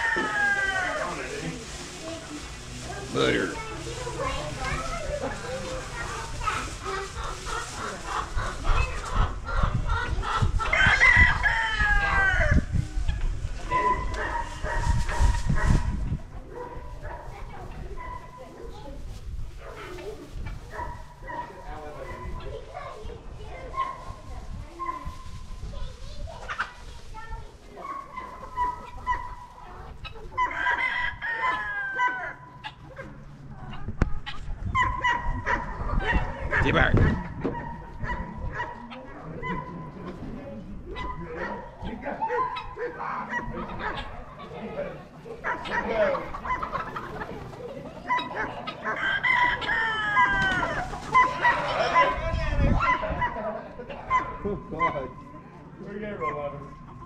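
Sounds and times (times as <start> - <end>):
rooster crowing: 0.0 - 1.2, 48.9 - 51.6
chickens clucking: 0.0 - 57.0.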